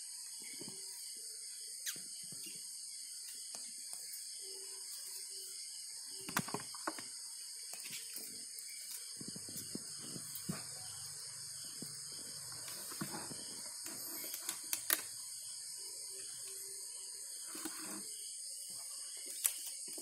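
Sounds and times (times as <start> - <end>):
night insects chorus: 0.0 - 20.0
clicks and rustles of bamboo: 12.6 - 15.1.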